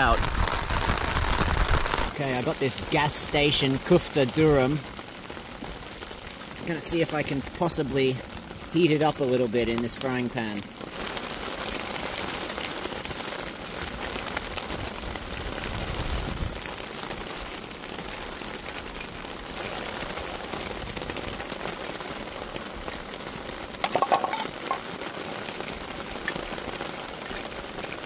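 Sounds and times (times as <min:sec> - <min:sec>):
rain falling on leaves and rocks: 0:00.0 - 0:28.0
cookware clattering: 0:23.8 - 0:24.8.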